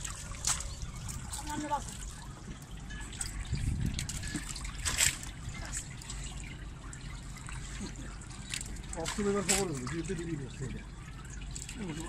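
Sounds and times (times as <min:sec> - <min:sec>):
river water splashing and trickling: 0:00.0 - 0:12.0
sharp water splash: 0:03.1 - 0:07.8, 0:08.4 - 0:10.1.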